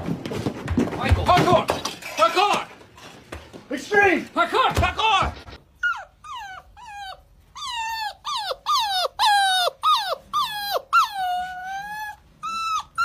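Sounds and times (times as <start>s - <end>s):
puppy howling: 5.8s - 13.0s.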